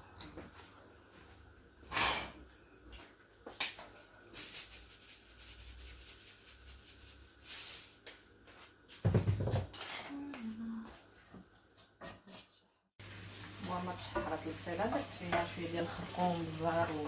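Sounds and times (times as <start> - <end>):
short hissing bursts: 4.3 - 8.0
spice shaker rattling: 4.3 - 8.0.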